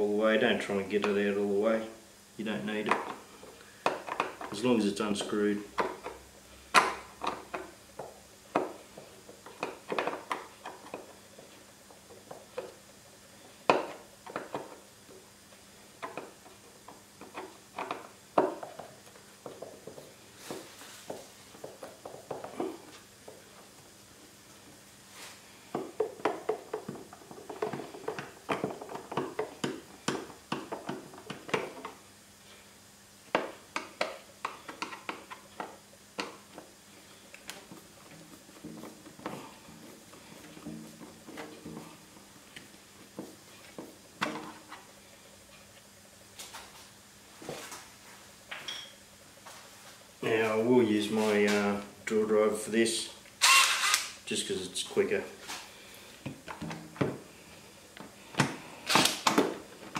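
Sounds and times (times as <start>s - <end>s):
screwdriver clicking on screws: 53.4s - 54.2s.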